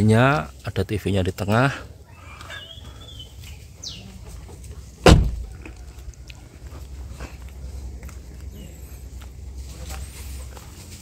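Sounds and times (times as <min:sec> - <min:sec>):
car door shutting: 0:05.0 - 0:05.5.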